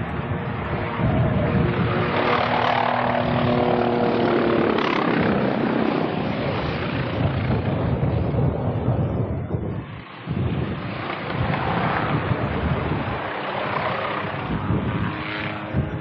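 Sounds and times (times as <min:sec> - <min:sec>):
helicopter rotor and engine: 0:00.0 - 0:16.0.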